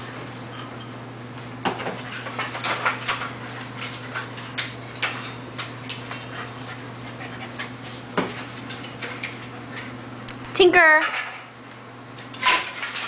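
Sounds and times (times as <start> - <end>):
dogs scuffling on tile floor: 0.0 - 10.2
dogs panting: 3.3 - 9.8.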